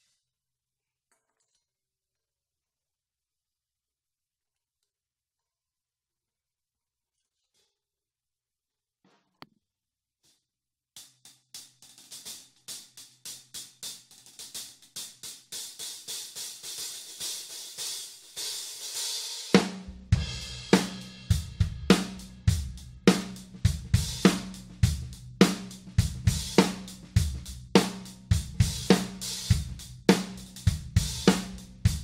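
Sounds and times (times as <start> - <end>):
hi-hat struck with drumstick: 11.0 - 32.0
snare drum: 11.0 - 32.0.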